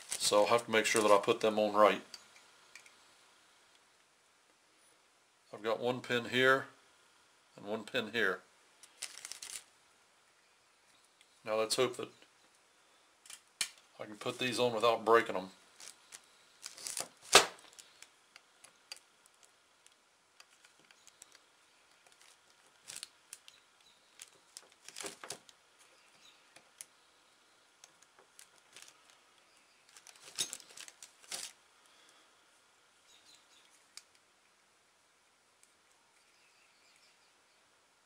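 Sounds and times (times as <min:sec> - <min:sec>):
handling sounds: 0:00.0 - 0:03.0, 0:08.8 - 0:09.7, 0:15.7 - 0:27.0, 0:27.7 - 0:31.6
faint rustles and small clicks: 0:08.8 - 0:09.8, 0:15.7 - 0:27.0, 0:27.7 - 0:32.2, 0:33.2 - 0:34.6.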